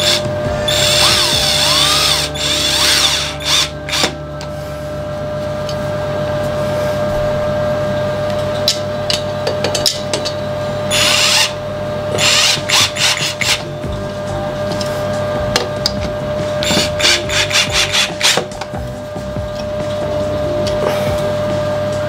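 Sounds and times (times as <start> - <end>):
impact drill driving screws: 12.2 - 13.6, 16.6 - 18.5.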